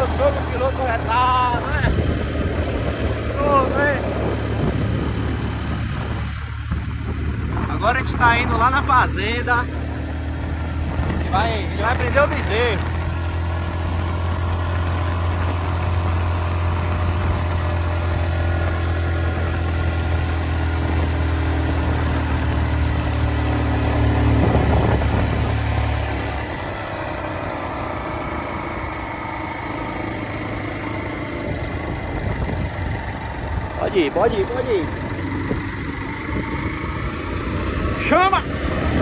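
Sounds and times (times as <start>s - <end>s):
vehicle engine droning: 0.0s - 39.0s.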